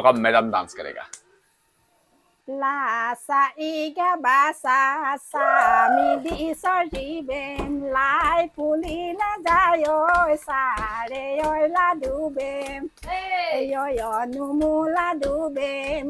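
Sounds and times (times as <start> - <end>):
women singing folk song: 2.5 - 16.0
steady hand claps: 5.6 - 16.0.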